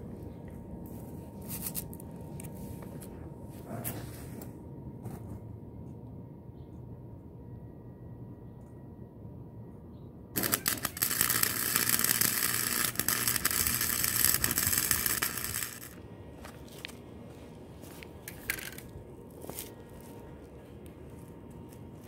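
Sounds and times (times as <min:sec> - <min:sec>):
arc welding crackling hiss: 0:10.4 - 0:16.0.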